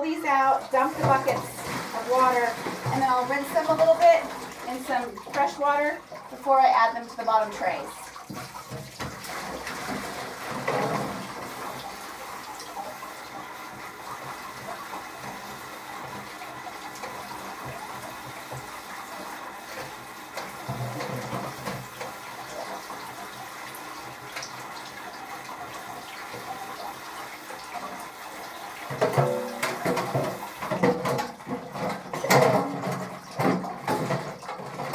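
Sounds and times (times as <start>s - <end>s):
water running from sink tap: 0.0s - 34.9s
water splashing: 0.0s - 34.9s
buckets knocking: 0.2s - 7.6s, 28.9s - 34.9s.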